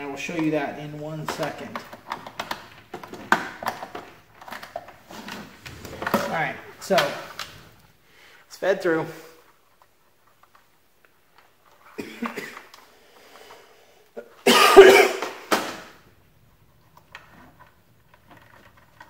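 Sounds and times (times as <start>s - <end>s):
man coughing: 12.0s - 12.7s, 14.2s - 15.4s.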